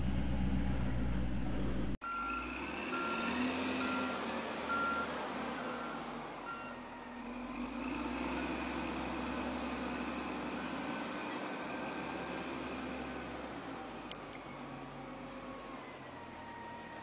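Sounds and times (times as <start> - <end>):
diesel engine running: 0.0 - 17.0
reversing alarm beeping: 2.0 - 7.1.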